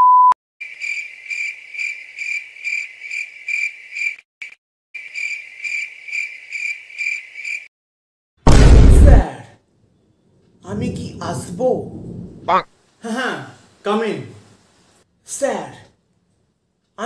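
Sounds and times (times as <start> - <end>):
cricket chirping: 0.6 - 7.7.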